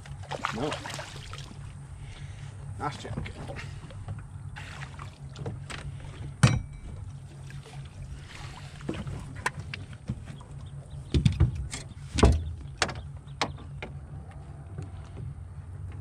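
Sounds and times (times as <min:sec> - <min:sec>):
steady low hum: 0:00.0 - 0:16.0
net knocking on metal boat: 0:06.4 - 0:07.0.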